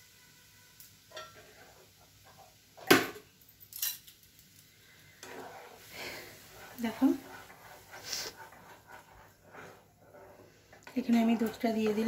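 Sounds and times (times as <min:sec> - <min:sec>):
metal utensils clinking: 0:03.4 - 0:04.7.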